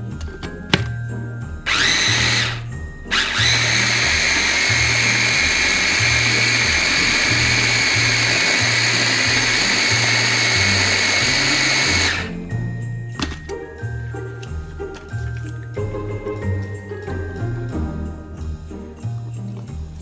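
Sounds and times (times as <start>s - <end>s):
blender motor whining: 1.7s - 12.4s.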